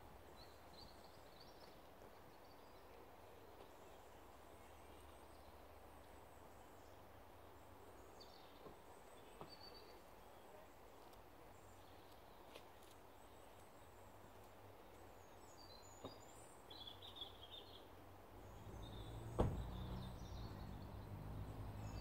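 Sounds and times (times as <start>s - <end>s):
distant birds chirping: 14.9s - 22.0s.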